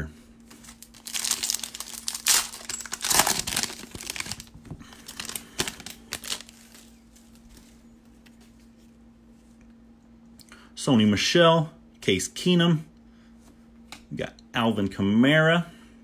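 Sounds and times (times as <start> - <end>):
foil wrapper tearing and crinkling: 0.5 - 7.6.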